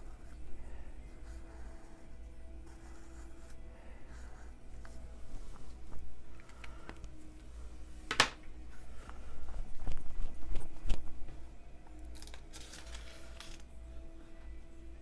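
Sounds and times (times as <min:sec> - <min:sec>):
thin paper rustling: 0:12.1 - 0:13.7.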